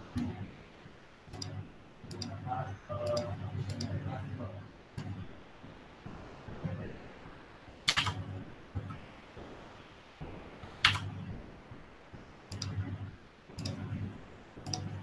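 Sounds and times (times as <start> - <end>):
computer mouse clicks: 1.3 - 2.4, 3.0 - 4.0, 7.9 - 8.2, 10.8 - 11.2, 12.5 - 12.8, 13.6 - 13.9, 14.6 - 14.9.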